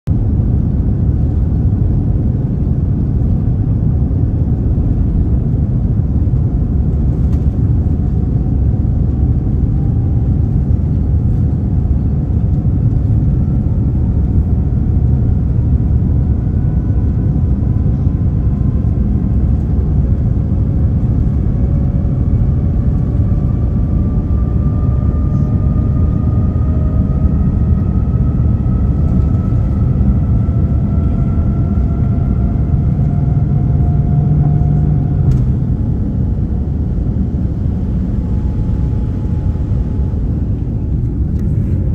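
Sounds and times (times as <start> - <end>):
jet engines on takeoff roll: 0.1 - 41.9.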